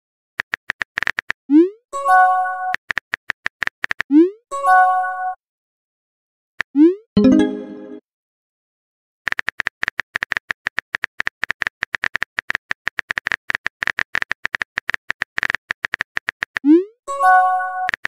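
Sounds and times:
keyboard typing clicks: 17.8 - 18.0.

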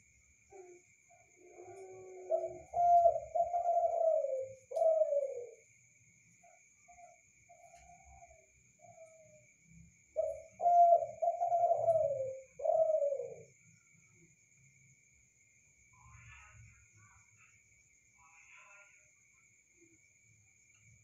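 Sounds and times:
dove cooing: 0.5 - 5.6, 10.1 - 13.6.

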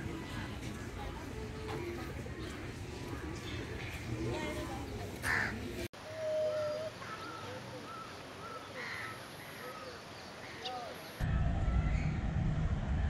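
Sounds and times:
birds calling: 5.2 - 11.2.

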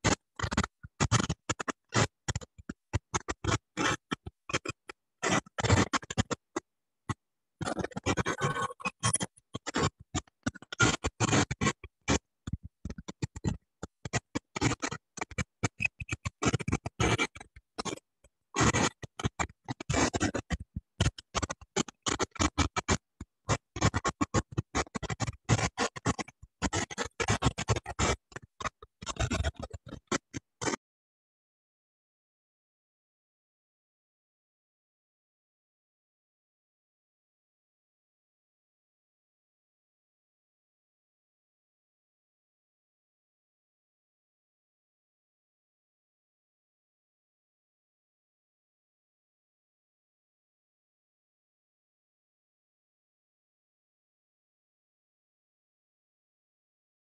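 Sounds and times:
garbled choppy microphone audio: 0.0 - 30.8.

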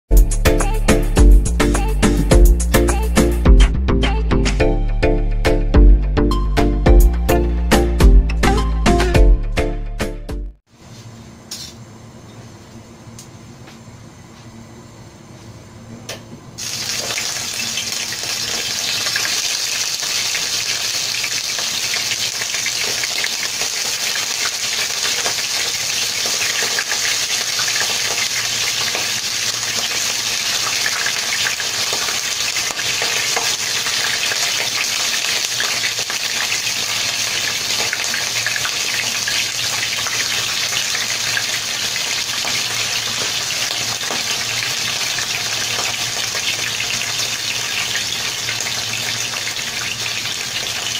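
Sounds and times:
fish sizzling in hot oil: 16.6 - 50.9.

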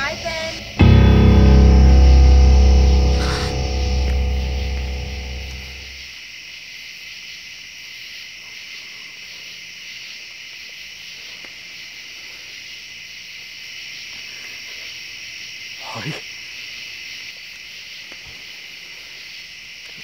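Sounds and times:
distorted electric guitar: 0.6 - 6.0.

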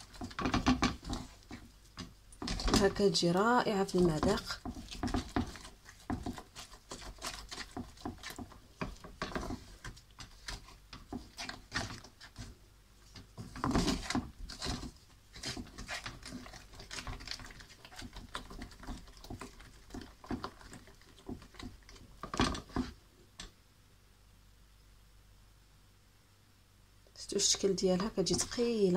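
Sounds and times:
wooden spatula scraping pan: 0.0 - 23.0, 27.9 - 28.9.

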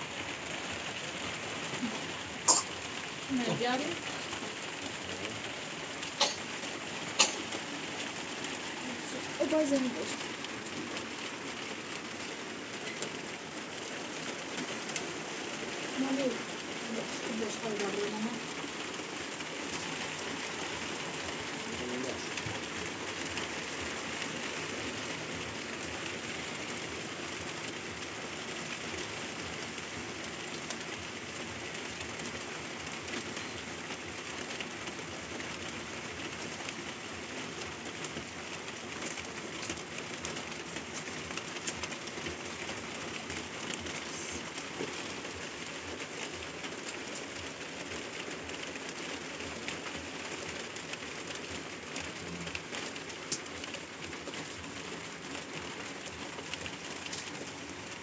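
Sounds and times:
steady rain falling: 0.0 - 58.0.

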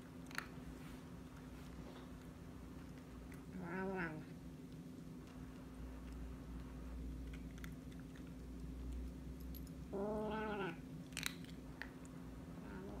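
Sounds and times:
kitten chewing food: 4.3 - 9.9.

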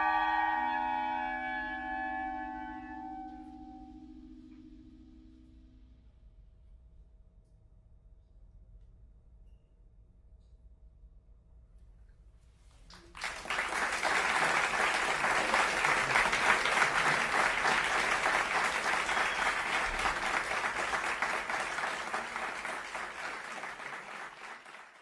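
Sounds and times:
audience applause: 12.9 - 25.0.

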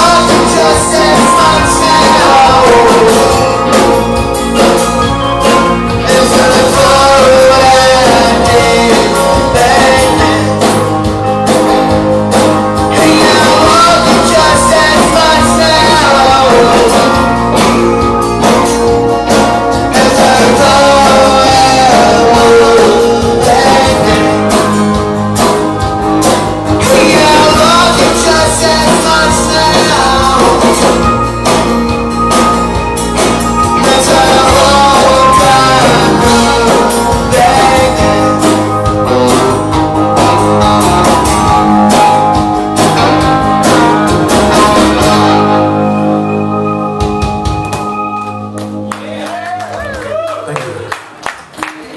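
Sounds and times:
man singing lead: 0.0 - 11.2, 12.8 - 17.7, 19.6 - 25.2, 26.7 - 31.4, 33.3 - 41.6
strummed acoustic guitar: 0.0 - 48.6
drum kit: 0.0 - 51.2
bass guitar: 0.0 - 51.4
electric guitars: 0.0 - 51.9.

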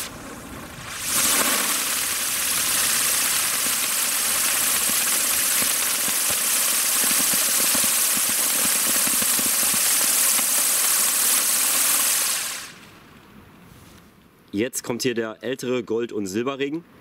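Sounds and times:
firework fountain hissing and crackling: 0.0 - 13.0.

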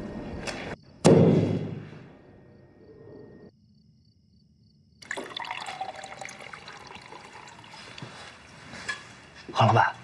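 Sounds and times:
tea pouring into a ceramic cup: 5.0 - 8.6.

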